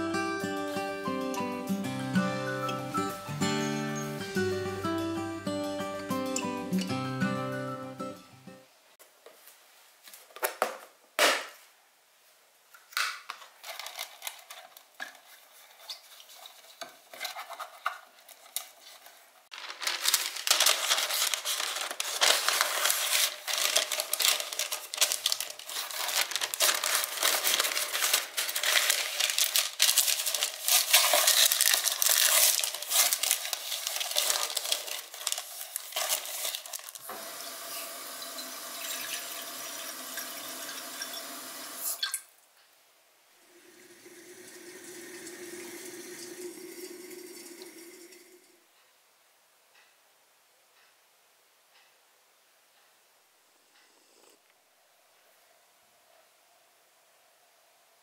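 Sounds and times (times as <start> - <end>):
parchment paper crinkling: 13.4 - 37.2
tap water running into saucepan: 37.1 - 42.1.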